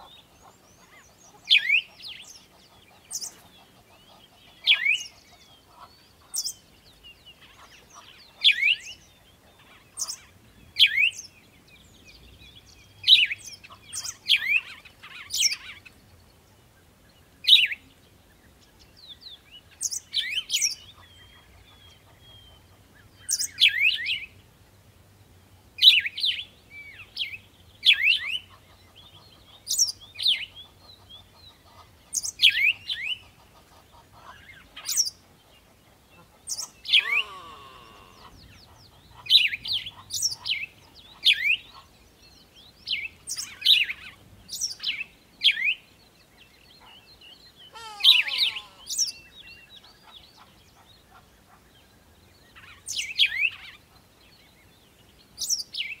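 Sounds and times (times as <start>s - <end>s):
birds chirping: 0.0s - 24.6s, 25.2s - 56.0s
drawn-out falling bird call: 36.8s - 38.5s, 47.7s - 49.2s.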